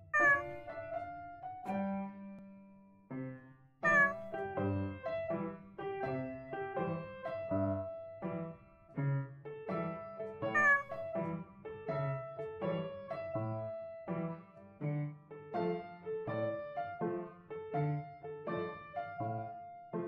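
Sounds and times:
cat meowing: 0:00.0 - 0:00.7, 0:03.8 - 0:04.3, 0:10.5 - 0:11.0
piano music: 0:00.0 - 0:20.0.

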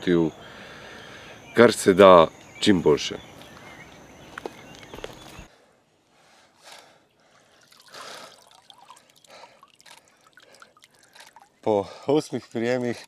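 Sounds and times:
water splashing and dripping: 0:07.3 - 0:13.0.

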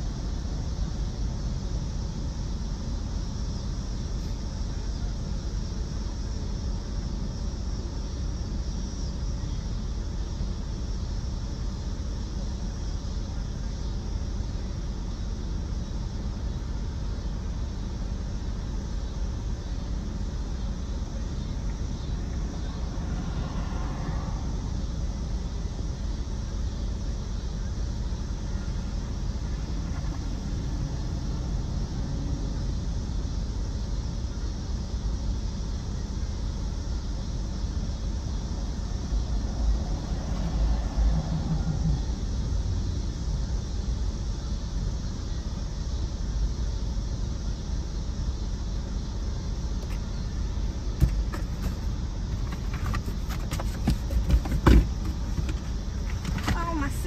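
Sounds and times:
car engine idling: 0:00.0 - 0:57.0
canned goods knocking: 0:52.5 - 0:55.6.

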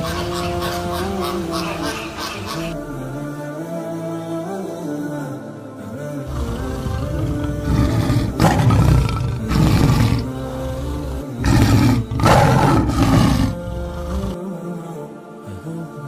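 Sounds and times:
leopard growling: 0:00.0 - 0:02.8, 0:06.3 - 0:14.4
background music: 0:00.0 - 0:16.0.

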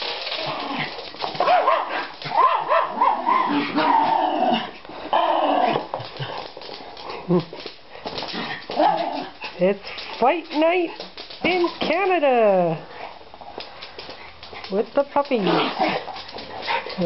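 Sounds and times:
dogs yipping and barking: 0:01.4 - 0:04.2.

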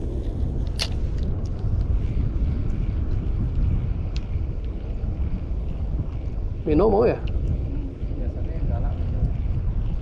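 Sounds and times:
steady low rumble: 0:00.0 - 0:10.0
faint ticks: 0:00.6 - 0:06.4, 0:07.2 - 0:07.7.

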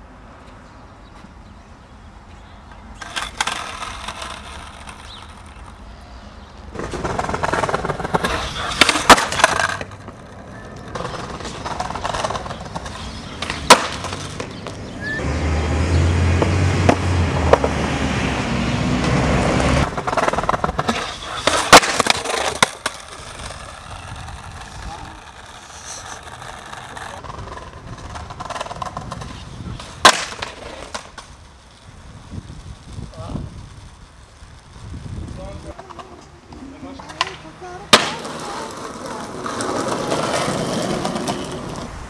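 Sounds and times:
skateboard wheels rolling: 0:00.2 - 0:42.0
skateboard clattering away: 0:03.0 - 0:05.8, 0:06.7 - 0:14.8, 0:19.8 - 0:31.4, 0:37.0 - 0:41.9
skateboard popping and slapping down: 0:03.0 - 0:05.8, 0:06.7 - 0:14.9, 0:19.8 - 0:31.8, 0:35.7 - 0:42.0.

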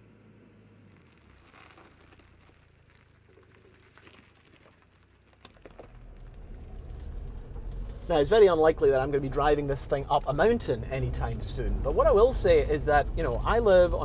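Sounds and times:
light crackles: 0:00.3 - 0:11.5
car engine running: 0:05.7 - 0:14.0.

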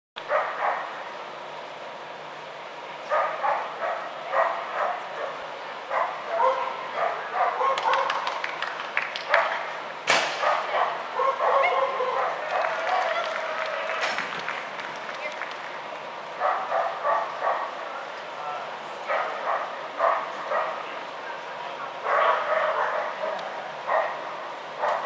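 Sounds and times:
dog barking: 0:00.3 - 0:00.9, 0:03.1 - 0:08.2, 0:10.4 - 0:12.4, 0:16.4 - 0:17.7, 0:19.1 - 0:20.8, 0:22.0 - 0:24.2, 0:24.8 - 0:25.0
sharp bang: 0:10.0 - 0:10.5.

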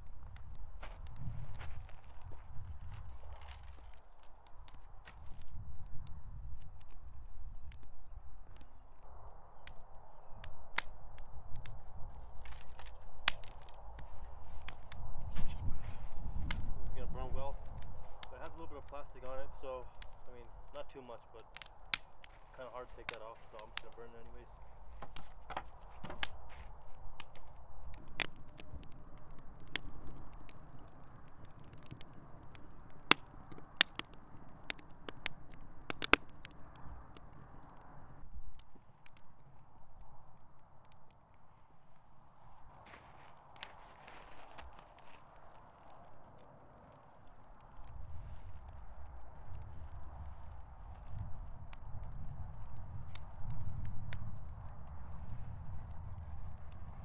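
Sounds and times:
loud cracks from fire: 0:00.0 - 0:57.0
wood fire crackling: 0:00.0 - 0:57.0.

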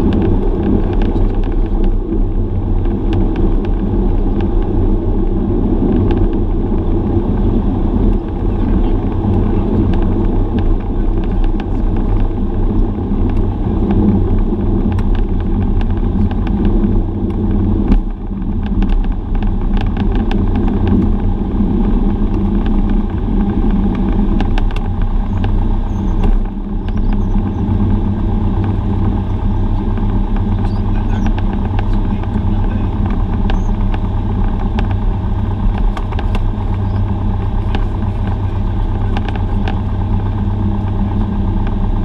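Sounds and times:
airplane engine and propeller: 0:00.0 - 0:42.0.

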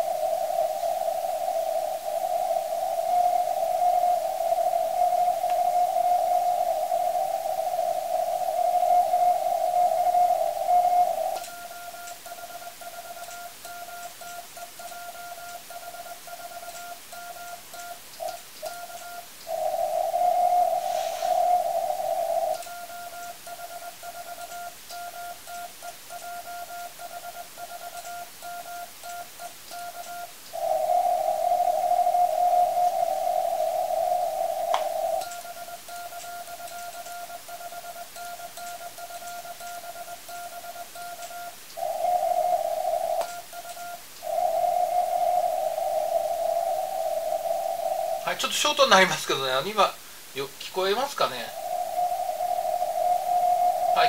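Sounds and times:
radio hiss: 0:00.0 - 0:11.7, 0:19.4 - 0:22.7, 0:30.5 - 0:36.6, 0:41.5 - 0:54.0
morse code beeps: 0:11.4 - 0:19.3, 0:22.5 - 0:30.4, 0:35.2 - 0:41.6, 0:42.6 - 0:44.0.

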